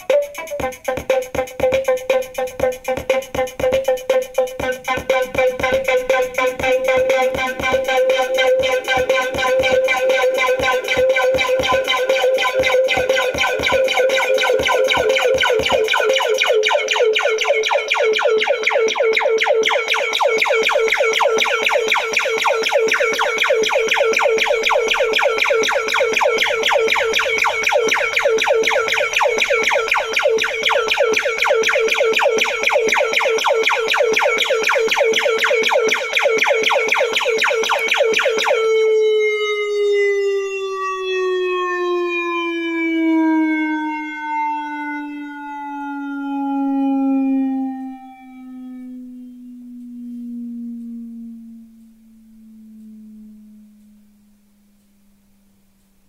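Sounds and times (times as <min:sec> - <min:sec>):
pulsing buzzy synth note: 0:04.5 - 0:40.4, 0:47.7 - 0:55.8.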